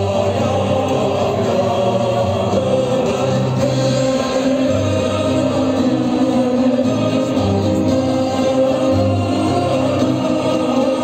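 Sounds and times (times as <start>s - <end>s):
choir singing: 0.0s - 11.0s
folk instrument orchestra: 0.0s - 11.0s.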